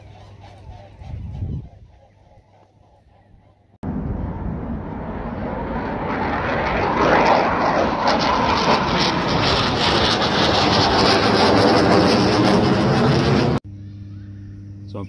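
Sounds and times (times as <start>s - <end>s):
jet aircraft flying over: 3.8s - 13.6s.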